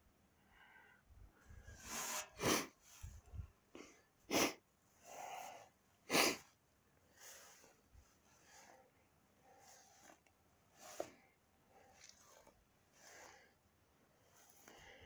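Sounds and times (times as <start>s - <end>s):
soft breathing: 0.4s - 15.0s
sharp sniffs: 1.6s - 3.2s, 3.8s - 13.6s.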